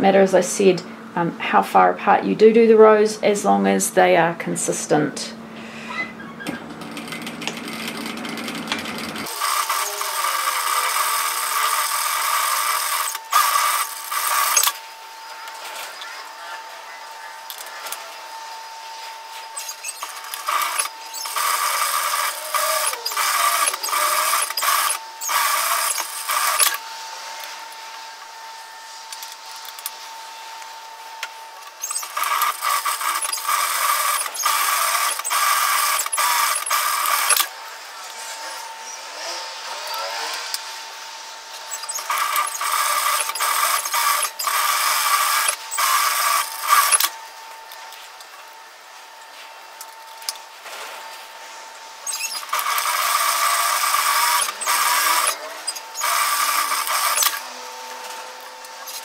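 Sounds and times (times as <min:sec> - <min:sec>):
sewing machine stitching: 0:06.4 - 0:14.8, 0:19.6 - 0:26.8, 0:31.8 - 0:37.5, 0:41.7 - 0:47.1, 0:52.0 - 0:57.5.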